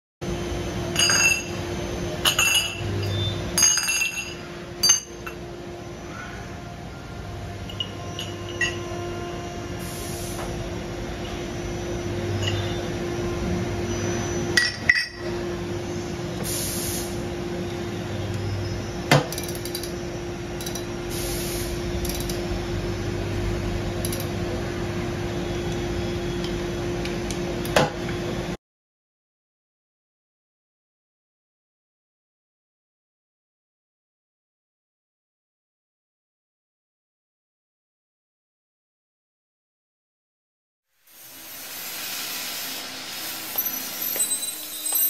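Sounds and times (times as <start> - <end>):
steady machine hum: 0.2 - 28.6, 41.1 - 45.0
steel parts clinking and knocking: 19.1 - 20.0, 20.6 - 20.9, 22.0 - 22.4.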